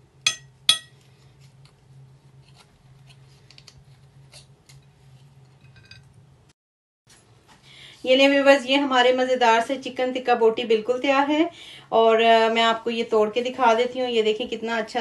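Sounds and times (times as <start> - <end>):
low steady hum: 0.0 - 6.5.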